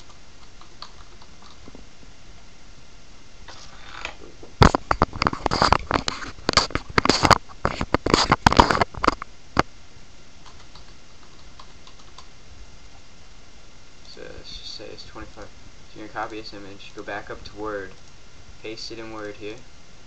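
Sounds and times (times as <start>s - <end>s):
typing on computer keyboard: 10.5s - 12.3s.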